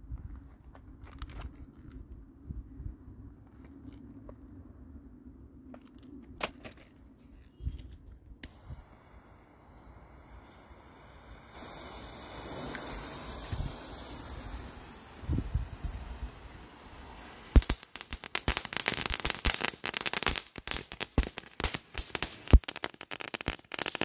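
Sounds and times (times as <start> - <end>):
fuse fizzing: 8.4 - 18.4
torch lighter hissing: 8.4 - 19.5.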